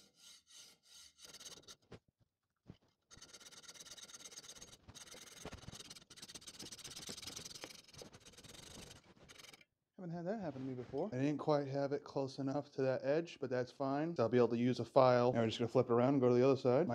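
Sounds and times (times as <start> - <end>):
hacksaw cutting metal pipe: 0.0 - 1.8.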